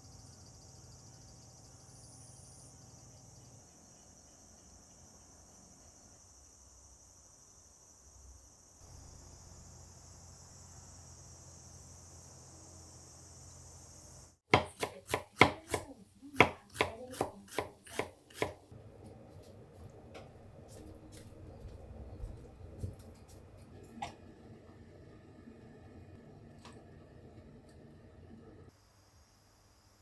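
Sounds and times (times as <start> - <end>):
insects chirring: 0.0 - 14.4
knife chopping on wooden board: 14.5 - 18.6.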